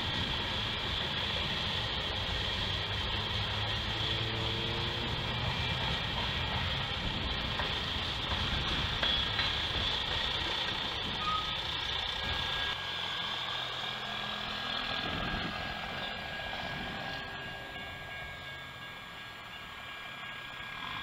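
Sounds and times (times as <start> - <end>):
road traffic passing: 0.0 - 21.0
crossing warning bell ringing: 11.0 - 21.0.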